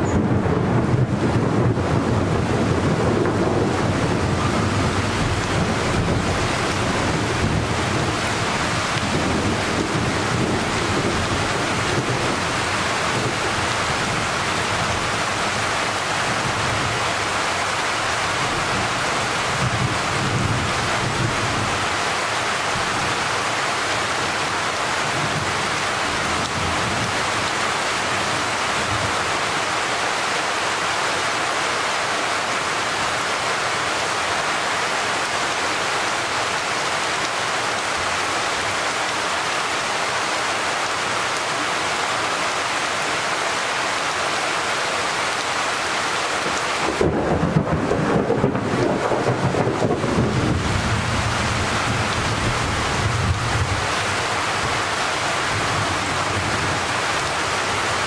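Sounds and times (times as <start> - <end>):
low thunder rumble: 0.0 - 15.2, 46.8 - 54.0
steady rain: 0.0 - 58.0.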